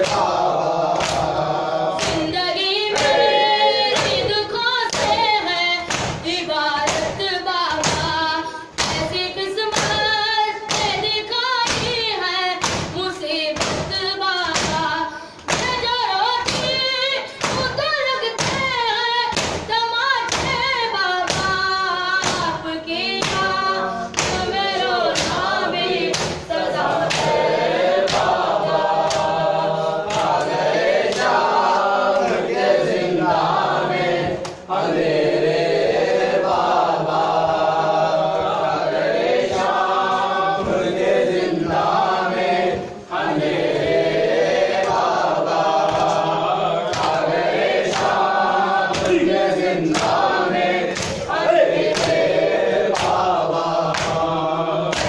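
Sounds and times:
men chanting in chorus: 0:00.0 - 0:05.5, 0:22.4 - 0:55.0
hands slapping chests: 0:00.0 - 0:12.0, 0:12.6 - 0:16.8, 0:18.4 - 0:32.5, 0:34.2 - 0:34.7, 0:44.7 - 0:55.0.

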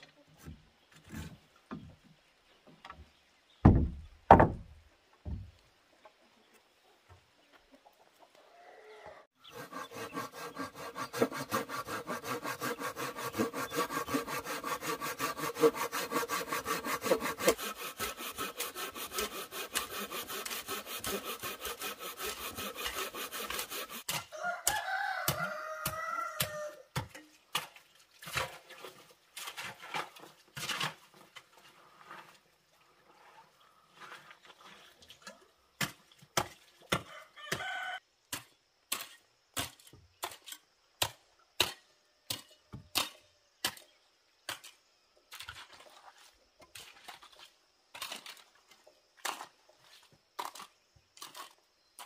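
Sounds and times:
handsaw cutting wood: 0:09.4 - 0:24.2
rooster crowing: 0:24.3 - 0:26.9, 0:37.0 - 0:38.0
hoe chopping stony soil: 0:35.8 - 0:37.7, 0:38.3 - 0:44.8, 0:50.4 - 0:52.0.

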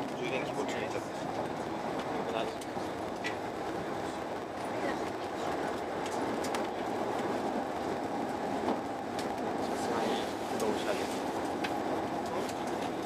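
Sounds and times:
train running at speed: 0:00.0 - 0:13.0.

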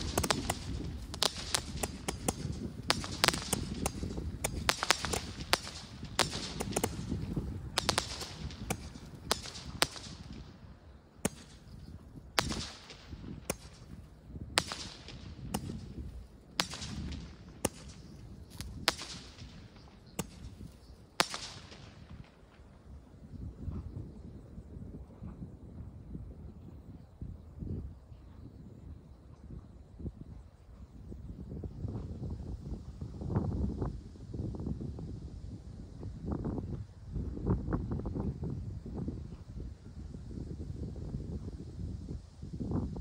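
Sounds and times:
fireworks bangs and cracks: 0:00.0 - 0:10.6, 0:12.3 - 0:22.6.

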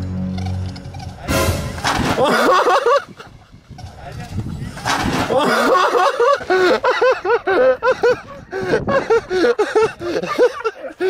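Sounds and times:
man laughing hard: 0:02.0 - 0:03.6, 0:05.2 - 0:11.0.

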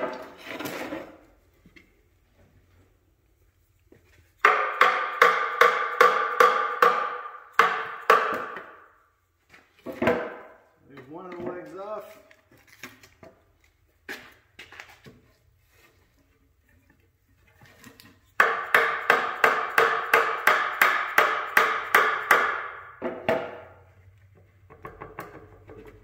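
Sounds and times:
mallet hammering on wooden chair: 0:04.4 - 0:08.8, 0:18.4 - 0:23.6.

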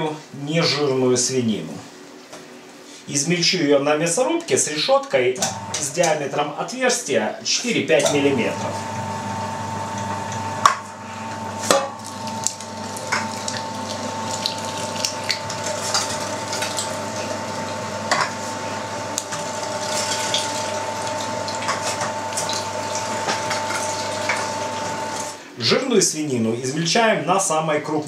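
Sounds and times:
meat grinder whining: 0:05.4 - 0:06.0, 0:08.1 - 0:25.4.

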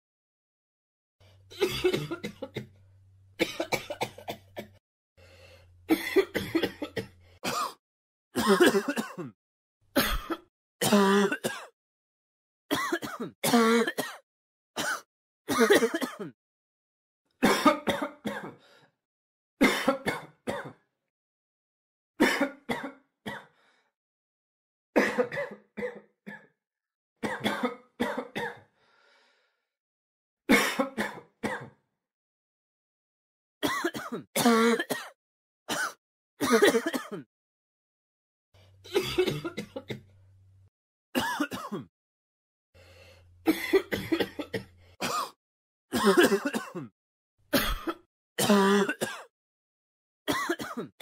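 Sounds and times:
person coughing: 0:01.5 - 0:02.7, 0:03.4 - 0:04.8, 0:05.9 - 0:07.8, 0:08.4 - 0:09.4, 0:10.0 - 0:11.8, 0:12.7 - 0:14.2, 0:14.8 - 0:16.4, 0:17.4 - 0:18.6, 0:19.6 - 0:20.8, 0:22.2 - 0:23.5, 0:25.0 - 0:26.5, 0:27.2 - 0:28.7, 0:30.5 - 0:31.8, 0:33.6 - 0:37.3, 0:38.9 - 0:40.0, 0:41.2 - 0:41.9, 0:43.5 - 0:46.9, 0:47.6 - 0:49.3, 0:50.3 - 0:51.0.

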